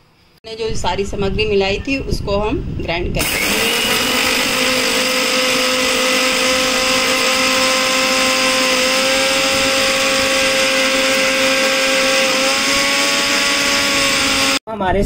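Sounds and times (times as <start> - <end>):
mixer grinder motor whine: 3.2 - 14.6.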